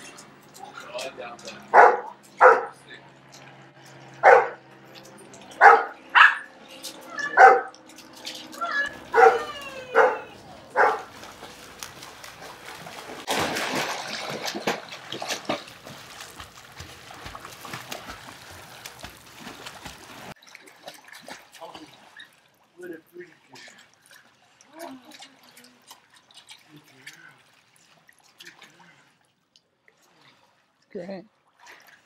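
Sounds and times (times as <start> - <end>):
water splashing in a pool: 0.0 - 32.0
dog barking: 1.7 - 2.8, 4.2 - 4.6, 5.6 - 6.5, 7.2 - 7.8, 9.1 - 11.1.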